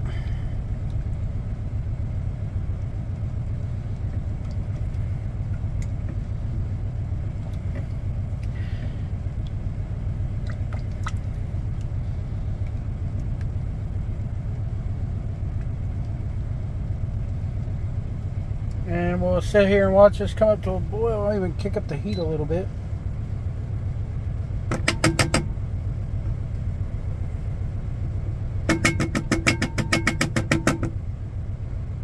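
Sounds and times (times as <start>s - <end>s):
diesel engine idling: 0.0s - 32.0s
light clicks and taps: 3.9s - 6.4s.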